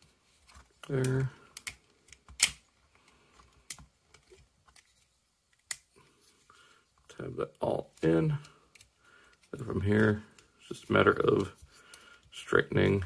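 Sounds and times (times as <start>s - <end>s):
plastic parts clicking and snapping: 0.5s - 5.9s, 8.0s - 9.6s.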